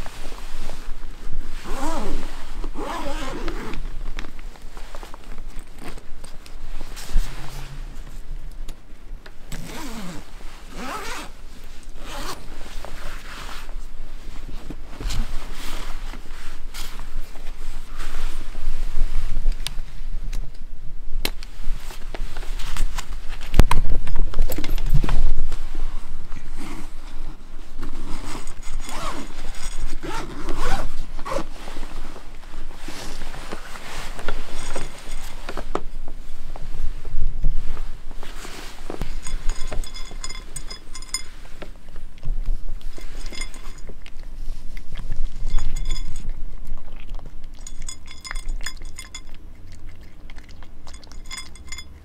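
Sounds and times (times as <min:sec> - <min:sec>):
fabric rustling: 0:00.0 - 0:08.4, 0:09.6 - 0:20.2, 0:25.0 - 0:44.8
zipper pulled open: 0:01.6 - 0:03.9, 0:09.5 - 0:11.4, 0:12.0 - 0:12.5, 0:26.5 - 0:27.0, 0:27.9 - 0:31.6.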